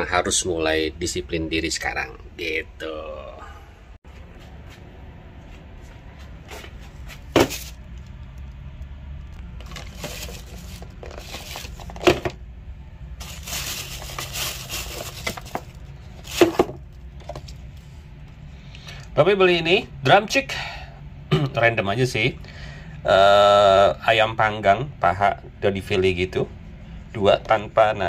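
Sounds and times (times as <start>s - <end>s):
plastic bag rustling: 7.1s - 7.9s, 9.5s - 12.4s, 13.2s - 17.6s.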